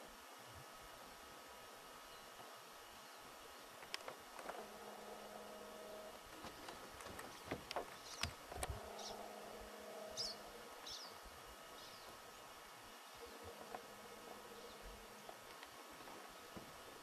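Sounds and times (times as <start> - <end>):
fly buzzing: 4.4 - 12.1, 13.0 - 16.6.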